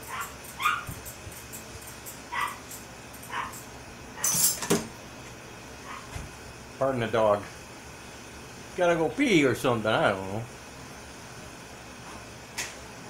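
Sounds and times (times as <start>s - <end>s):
dog whining in high yips: 0.1s - 1.0s, 2.3s - 2.6s.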